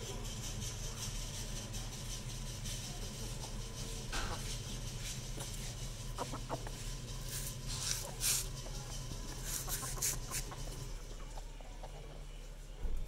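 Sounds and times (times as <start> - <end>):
hissy scratchy noises: 0.0 - 12.3
chickens clucking: 3.3 - 13.0.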